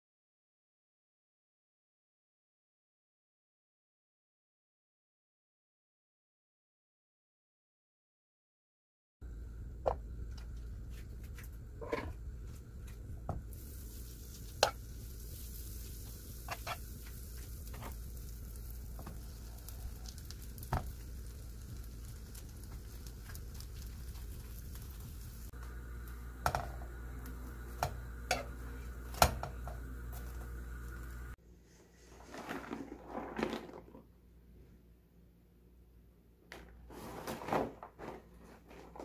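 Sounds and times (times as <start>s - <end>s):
butter sizzling in a frying pan: 13.3s - 31.4s.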